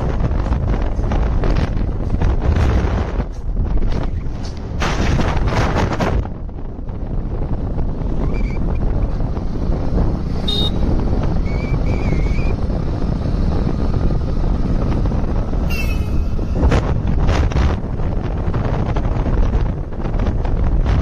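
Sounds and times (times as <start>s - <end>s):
wind and road noise rumble: 0.0s - 21.0s
short high chirps: 15.7s - 16.4s.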